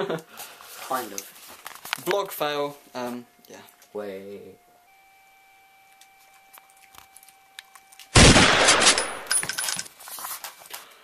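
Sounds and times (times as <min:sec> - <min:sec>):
loud gunfire blast: 0:08.2 - 0:09.3.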